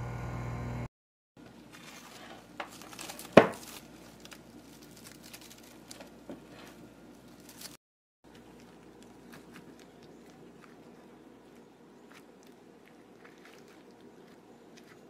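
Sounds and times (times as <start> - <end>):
plastic cling wrap crinkling: 1.6 - 10.8
cling wrap snapping: 2.6 - 6.1.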